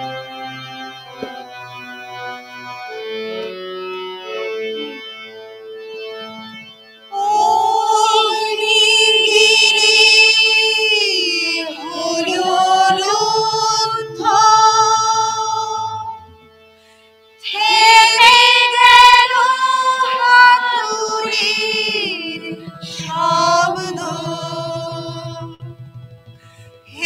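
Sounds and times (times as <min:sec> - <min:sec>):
harmonium: 0:00.0 - 0:27.0
mixed choir singing: 0:07.2 - 0:16.4, 0:17.4 - 0:25.8.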